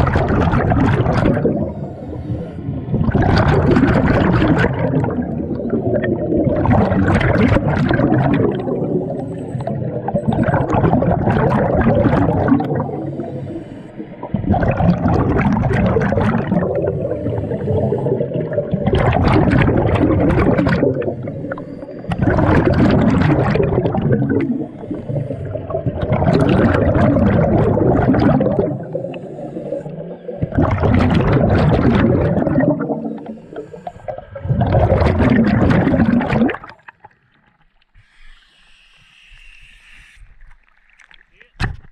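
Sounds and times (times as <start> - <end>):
scuba regulator exhaled bubbles: 0.0 - 41.2
scuba regulator breaths: 1.4 - 2.9, 12.6 - 14.6, 16.8 - 18.7, 21.0 - 23.4, 24.3 - 26.0, 28.6 - 30.6, 32.3 - 34.7, 37.9 - 40.6.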